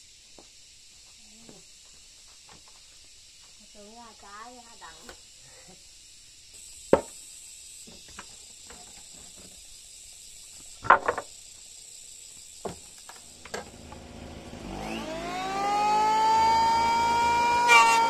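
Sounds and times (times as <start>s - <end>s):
electric planer motor whining: 13.4s - 18.0s.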